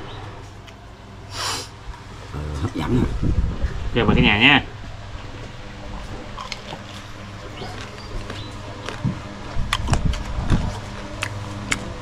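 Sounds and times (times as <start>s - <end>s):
low motor hum: 0.0s - 12.0s
man chewing crunchy bones: 5.2s - 12.0s.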